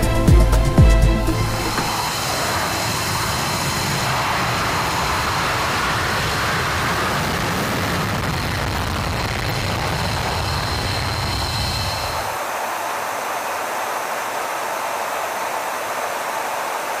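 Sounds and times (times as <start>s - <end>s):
jet engine roar: 1.2s - 17.0s.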